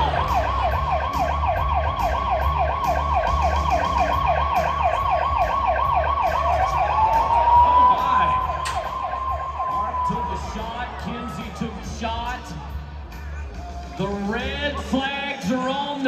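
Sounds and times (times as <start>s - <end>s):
warbling siren over loudspeakers: 0.0s - 11.8s
steady music beat: 0.0s - 14.8s.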